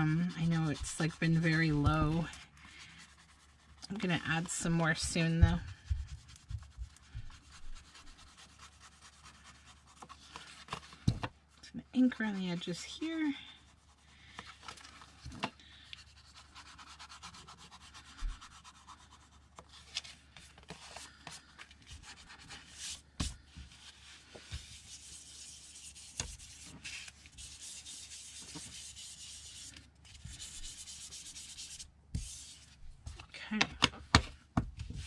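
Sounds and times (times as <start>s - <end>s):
foam tool rubbing paper: 0.0s - 11.0s, 16.0s - 19.9s, 21.9s - 32.8s.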